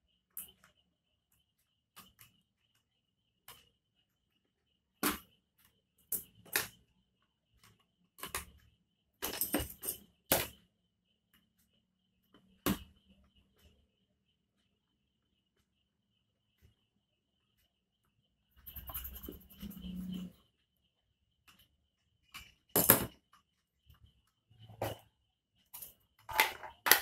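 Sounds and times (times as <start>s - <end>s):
plastic parts clicking and tapping: 4.9s - 10.7s, 24.6s - 27.0s.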